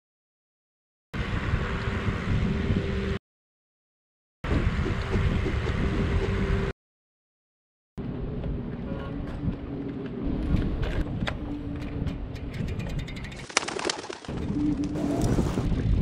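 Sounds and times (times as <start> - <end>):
wind buffeting microphone: 4.4 - 6.7, 8.2 - 13.4, 14.3 - 16.0
bicycle tyres rumbling on asphalt: 14.2 - 16.0.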